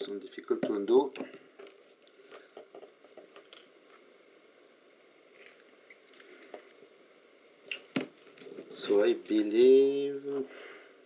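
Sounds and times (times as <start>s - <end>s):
crunches and clicks of compound: 0.5s - 4.1s.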